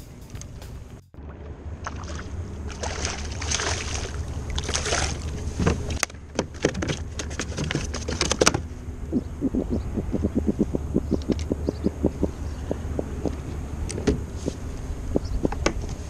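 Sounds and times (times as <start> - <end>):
fish splashing in water: 1.8 - 6.0
sharp clicks and knocks: 5.6 - 14.2, 15.1 - 16.0.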